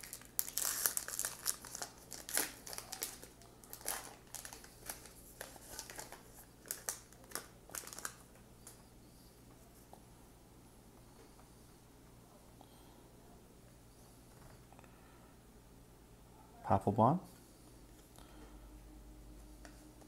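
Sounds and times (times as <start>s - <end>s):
card pack wrapper crinkling and tearing: 0.0s - 8.2s.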